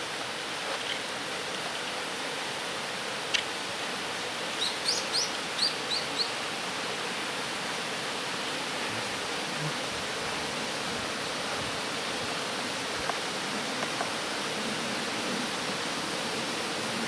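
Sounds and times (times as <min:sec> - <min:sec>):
falling water rushing: 0:00.0 - 0:17.0
small bird chirping: 0:04.6 - 0:06.3.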